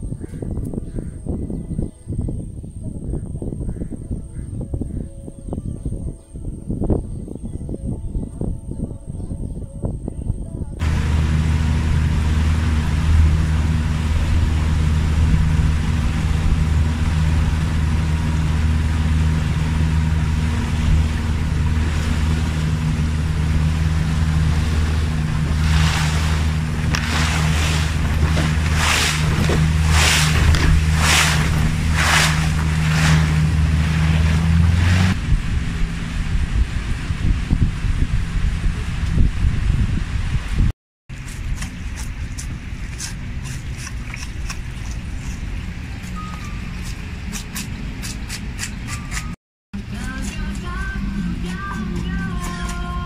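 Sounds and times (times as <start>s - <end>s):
water splashing: 10.8s - 37.2s
boat engine drone: 10.8s - 40.7s, 49.2s - 53.0s.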